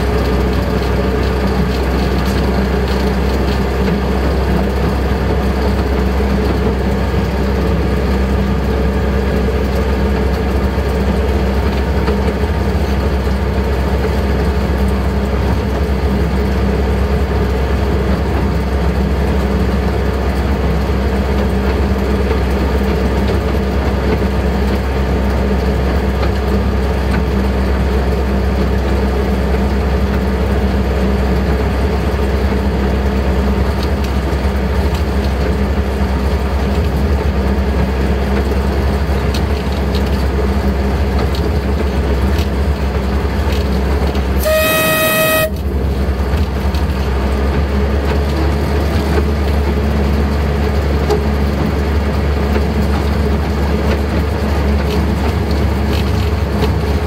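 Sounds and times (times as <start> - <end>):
locomotive engine humming: 0.0 - 57.0.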